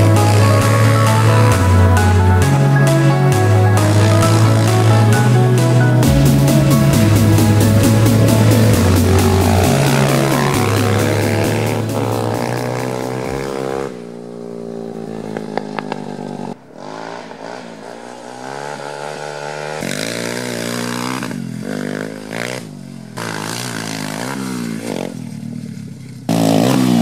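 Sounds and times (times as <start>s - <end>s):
motorbike engine revving: 0.0s - 27.0s.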